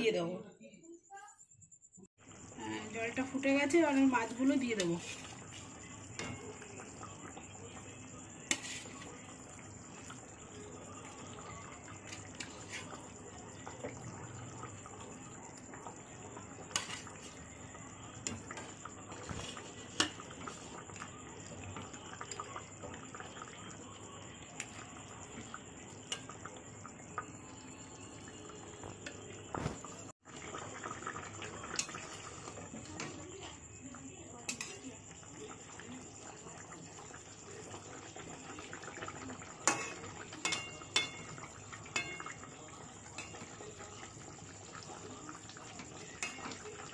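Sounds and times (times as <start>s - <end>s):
broth bubbling in a pan: 2.1s - 46.9s.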